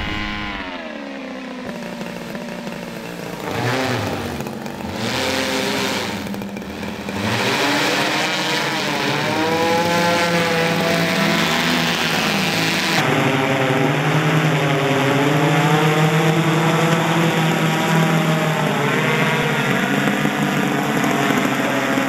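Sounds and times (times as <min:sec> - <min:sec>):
rushes of noise: 0:00.0 - 0:01.0
drone engine and propeller: 0:00.0 - 0:22.0.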